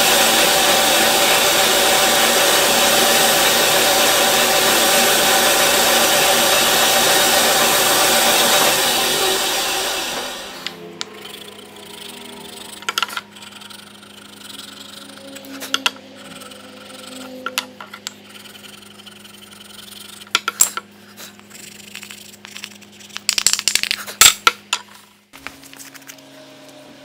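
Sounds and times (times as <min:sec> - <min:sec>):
low electrical hum: 0:09.2 - 0:27.0
hard objects clicking and clinking: 0:12.5 - 0:13.6, 0:14.8 - 0:18.4, 0:22.0 - 0:26.2.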